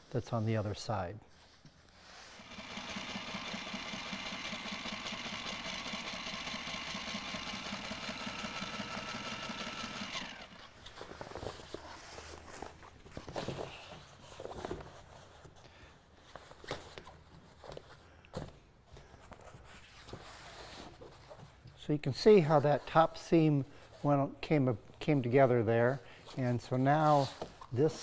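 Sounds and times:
sewing machine running: 2.3 - 10.8.

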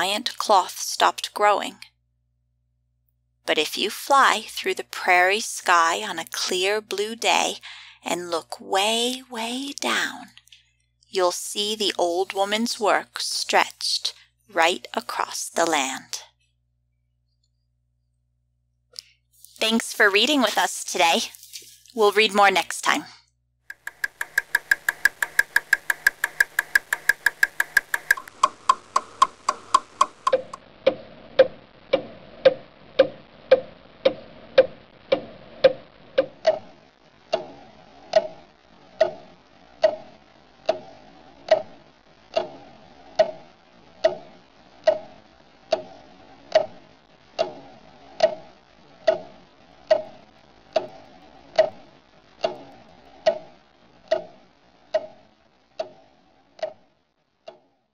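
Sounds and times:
clock ticking with ringing tone: 23.7 - 36.7, 43.1 - 45.1, 49.1 - 51.8.

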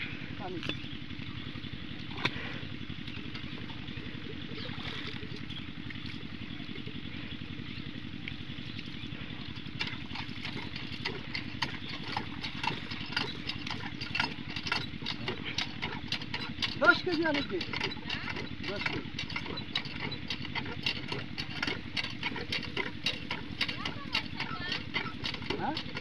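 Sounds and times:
diesel engine idling: 0.0 - 26.0
sharp clicks and clatter: 9.8 - 26.0.

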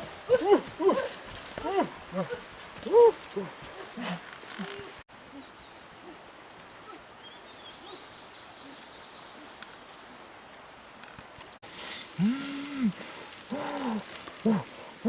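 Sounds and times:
low hoots: 12.0 - 14.8.

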